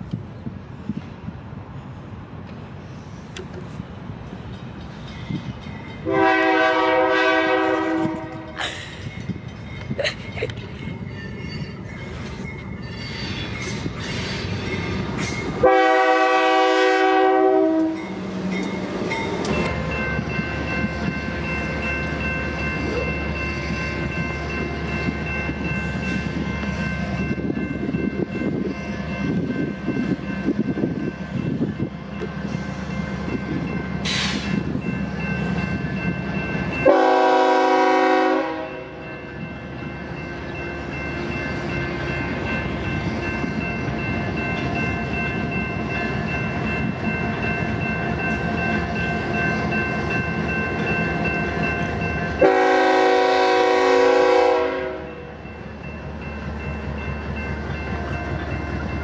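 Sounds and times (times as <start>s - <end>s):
train rumbling: 0.0s - 59.0s
crossing bell ringing: 4.2s - 59.0s
locomotive air horn blasts: 6.0s - 8.6s, 15.6s - 18.0s, 36.8s - 39.0s, 52.4s - 55.2s.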